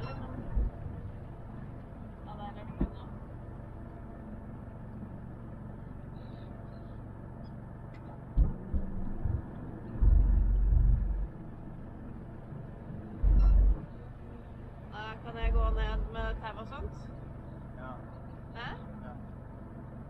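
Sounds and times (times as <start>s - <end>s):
wind buffeting microphone: 0.0s - 3.4s, 8.2s - 16.5s
boat engine low rumble: 0.0s - 20.0s
thump: 8.4s - 9.4s.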